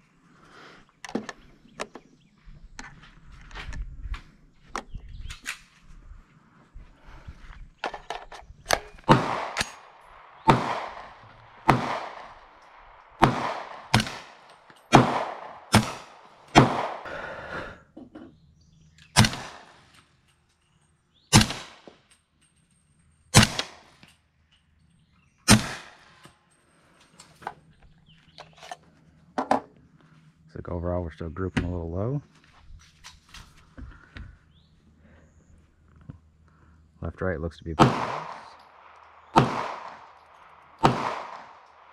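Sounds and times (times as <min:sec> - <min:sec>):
suppressed rifle shots: 0:08.7 - 0:17.1, 0:19.1 - 0:19.9, 0:21.3 - 0:21.9, 0:23.4 - 0:24.0, 0:25.5 - 0:26.1, 0:37.8 - 0:41.9.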